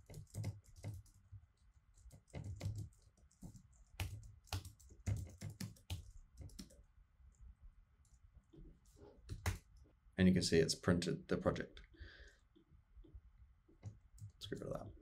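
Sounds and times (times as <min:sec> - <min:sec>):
typing on computer keyboard: 0:00.0 - 0:06.8.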